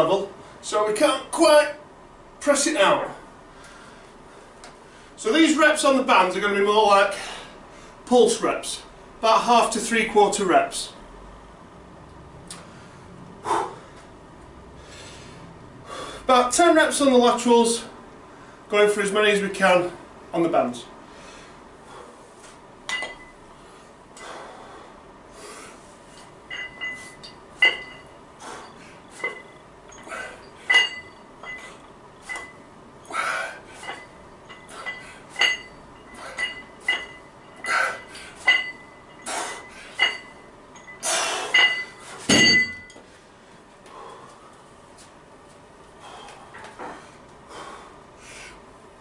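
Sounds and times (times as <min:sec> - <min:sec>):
dumbbell plates clinking: 0:22.9 - 0:23.4, 0:26.2 - 0:43.1.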